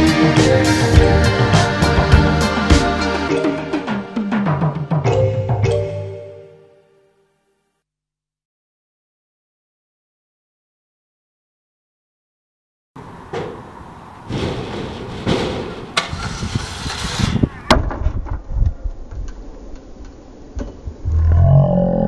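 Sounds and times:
scooter deck striking ground: 0:13.3 - 0:19.4
scooter wheels rolling on concrete: 0:14.2 - 0:17.7.

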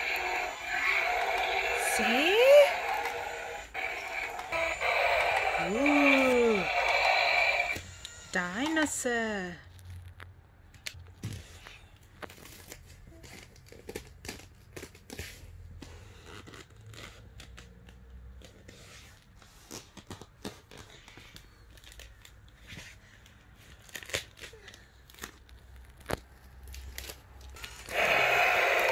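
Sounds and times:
plastic toy clicks and rattles: 0:00.0 - 0:07.8.

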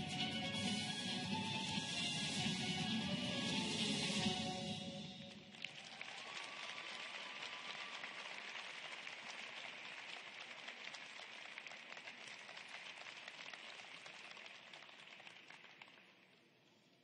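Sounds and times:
audience applause: 0:05.2 - 0:16.5.

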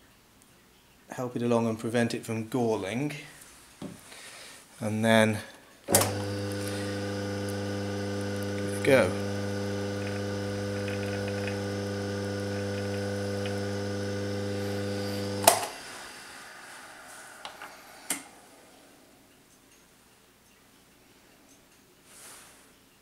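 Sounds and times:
lathe running down: 0:05.9 - 0:18.5
lathe humming: 0:05.9 - 0:19.0.

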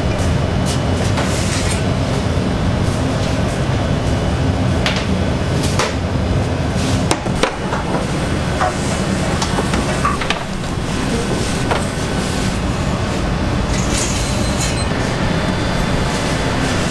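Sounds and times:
machine rumble: 0:00.0 - 0:16.9
knocks and clatter: 0:07.0 - 0:12.1.

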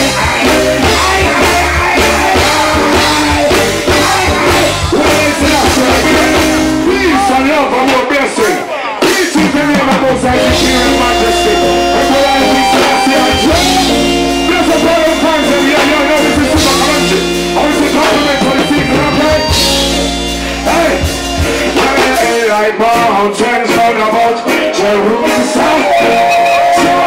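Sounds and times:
steady bass line: 0:00.0 - 0:07.8, 0:09.4 - 0:22.6
reggae song with singing: 0:00.0 - 0:27.0.

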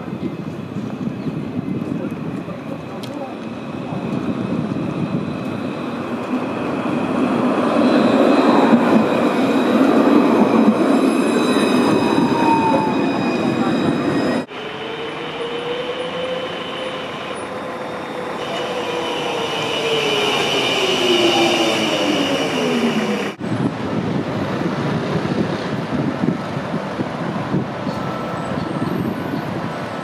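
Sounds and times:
city street traffic: 0:00.0 - 0:30.0
tram motors whining: 0:02.6 - 0:23.8.

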